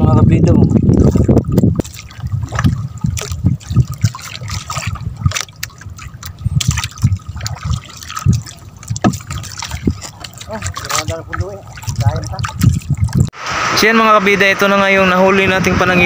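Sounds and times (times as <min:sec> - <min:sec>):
water splashing and trickling: 0:00.0 - 0:15.2
soft low knocks: 0:00.6 - 0:13.3.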